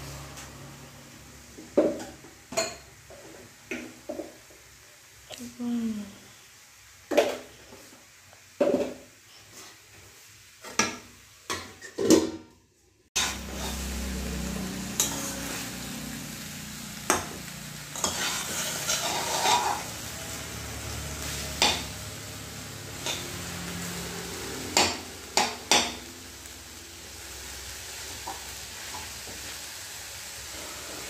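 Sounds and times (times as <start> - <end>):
vegetables sizzling: 0.0 - 12.0, 13.2 - 31.0
metal spatula scraping a wok: 13.2 - 26.2.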